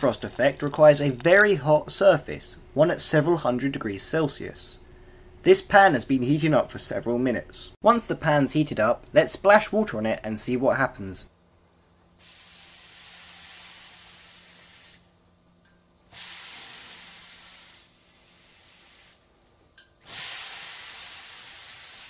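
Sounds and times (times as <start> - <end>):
water sizzling on a hot pan: 12.2 - 15.0, 16.2 - 19.2, 20.1 - 22.0.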